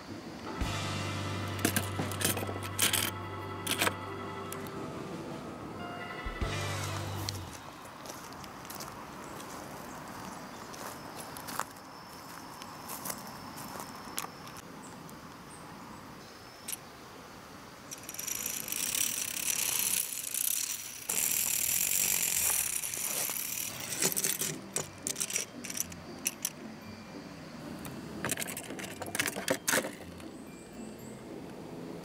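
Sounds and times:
toy truck clicking and rattling: 0:01.6 - 0:03.1, 0:03.7 - 0:04.0, 0:17.9 - 0:26.6, 0:28.2 - 0:30.3.

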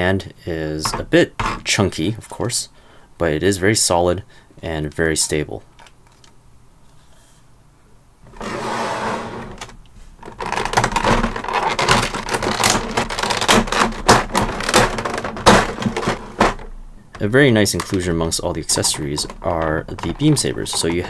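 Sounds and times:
plastic blister tray crinkling: 0:09.5 - 0:21.0.

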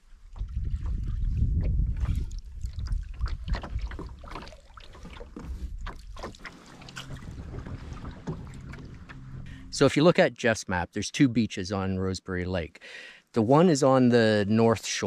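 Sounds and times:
paddle splashing in water: 0:00.0 - 0:09.8
wind rumble on microphone: 0:00.0 - 0:09.8
water dripping from paddle: 0:00.3 - 0:09.8.

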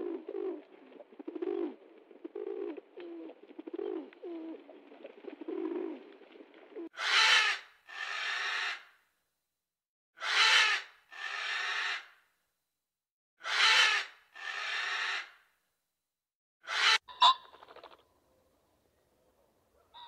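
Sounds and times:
pigeons cooing: 0:00.0 - 0:06.1.

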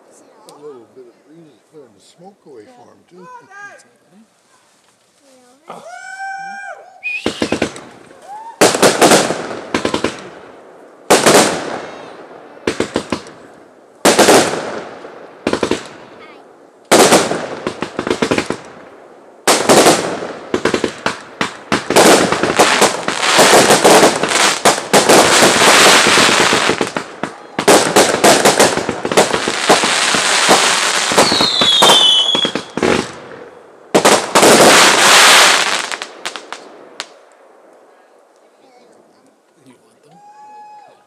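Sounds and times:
falling firework whistle: 0:05.9 - 0:08.9, 0:31.1 - 0:32.7, 0:40.2 - 0:41.0
firework bangs and crackling: 0:07.0 - 0:38.0.

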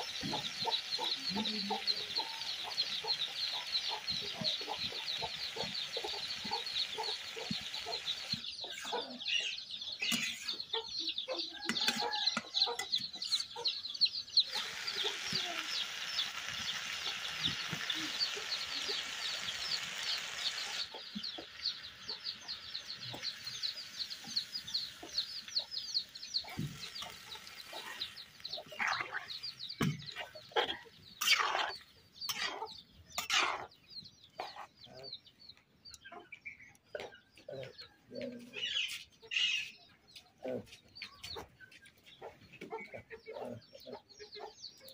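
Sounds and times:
fish and okra frying: 0:00.0 - 0:08.5, 0:11.6 - 0:33.7
chickens clucking: 0:00.0 - 0:44.9
chicks peeping: 0:00.0 - 0:44.9.

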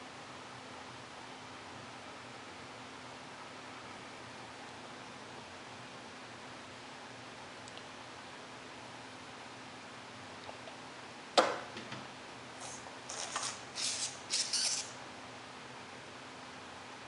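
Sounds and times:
applicator scratchy rubbing: 0:12.6 - 0:14.9.

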